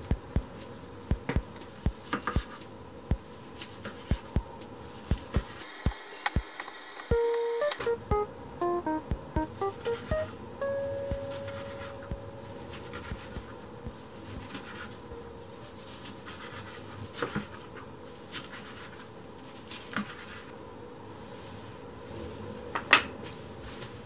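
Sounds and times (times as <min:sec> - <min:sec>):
faint steady hum: 0:00.0 - 0:16.7.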